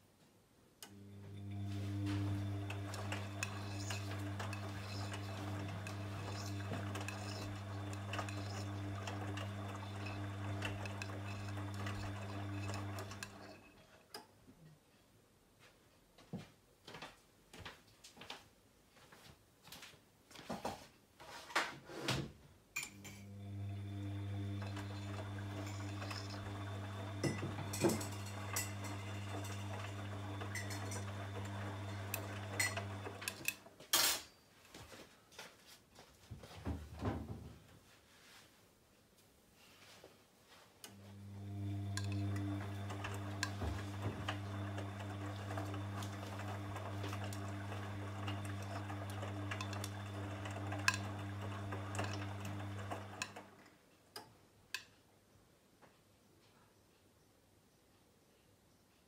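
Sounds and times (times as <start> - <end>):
washing machine drum motor humming: 0.9 - 13.7, 23.0 - 33.7, 40.9 - 53.6.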